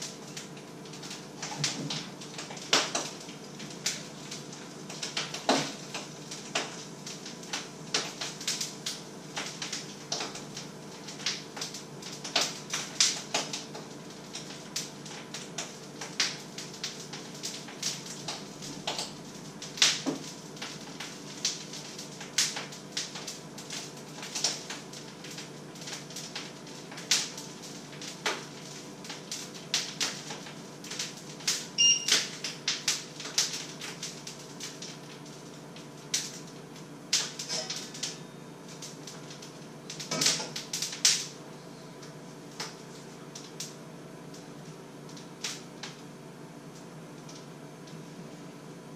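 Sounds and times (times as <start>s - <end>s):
food crackling and popping in pan: 0.0s - 48.1s
electrical hum: 0.0s - 48.9s
short high beep: 31.8s - 32.1s.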